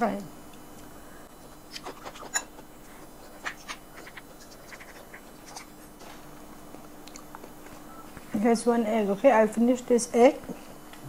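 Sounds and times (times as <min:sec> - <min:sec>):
faint steady hum: 0:00.0 - 0:11.0
chewing clicks and smacks: 0:06.8 - 0:08.3.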